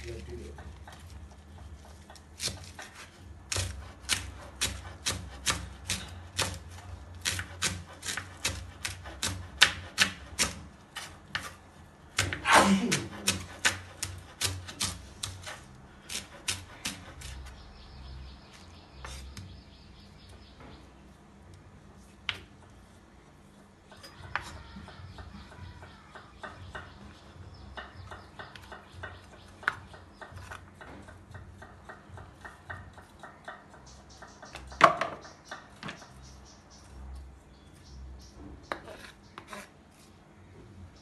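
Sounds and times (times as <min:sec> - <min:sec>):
knife chopping on wooden board: 0:02.1 - 0:17.5.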